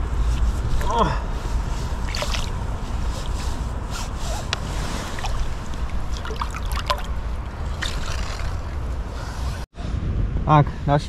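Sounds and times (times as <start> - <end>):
low rumble: 0.0 - 11.0
river water gurgling: 0.6 - 9.6
small splashes: 2.0 - 3.4, 4.6 - 8.9.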